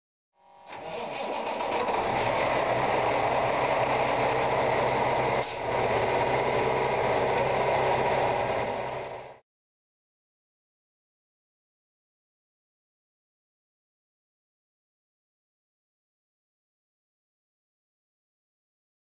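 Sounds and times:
truck diesel engine idling: 0:00.7 - 0:09.4.

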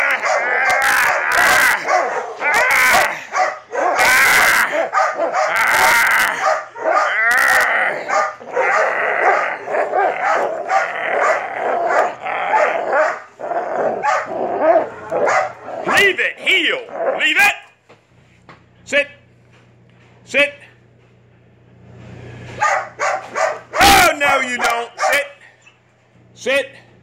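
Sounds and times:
dog barking and whining: 0:00.0 - 0:17.6, 0:22.5 - 0:25.8.

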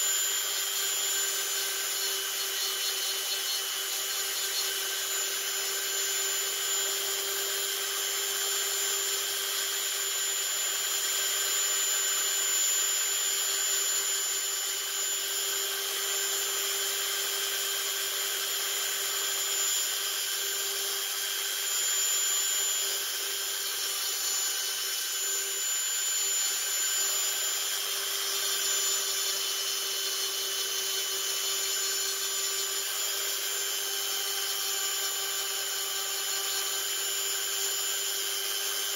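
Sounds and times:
rotary tool high whine: 0:00.0 - 0:38.9.

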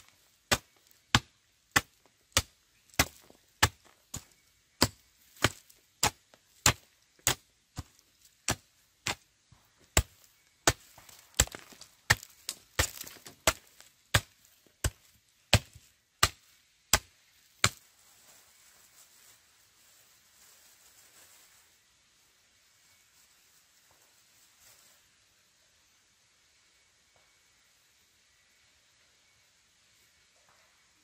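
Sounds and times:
blade chopping wood: 0:00.5 - 0:09.2, 0:09.9 - 0:17.8.

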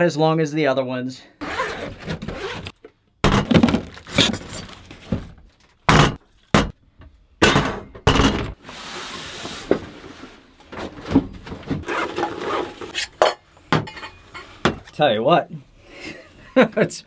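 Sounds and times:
cookware clanks and knocks: 0:07.4 - 0:08.5, 0:13.2 - 0:14.8.

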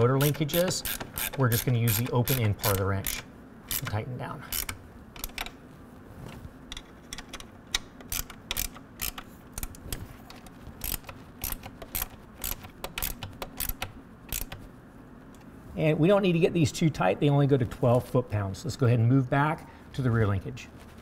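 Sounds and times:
ratchet wrench clicking: 0:00.0 - 0:05.5, 0:07.1 - 0:09.8, 0:10.8 - 0:14.7.

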